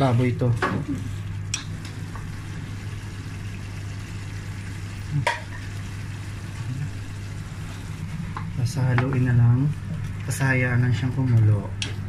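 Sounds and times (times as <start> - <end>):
steady low hum: 0.0 - 12.0
chicken sizzling in a pot: 1.9 - 8.4.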